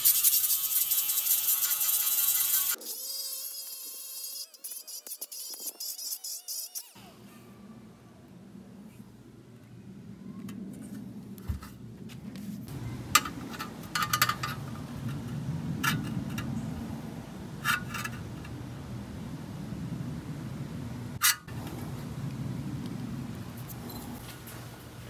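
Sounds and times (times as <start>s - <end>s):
low steady hum: 7.0s - 25.0s.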